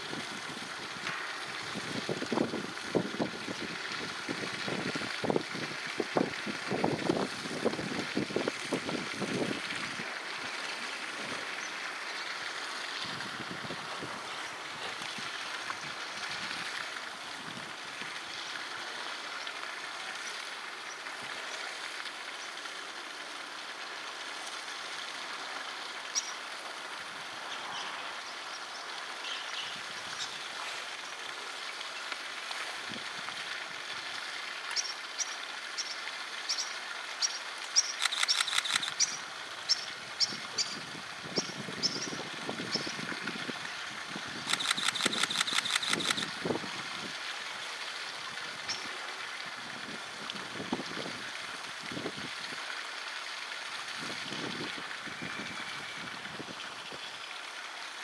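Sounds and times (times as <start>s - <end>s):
flowing water: 0.0s - 58.0s
short high ticks: 37.6s - 39.2s, 44.5s - 46.3s
rapid clicking rattles: 44.5s - 46.3s.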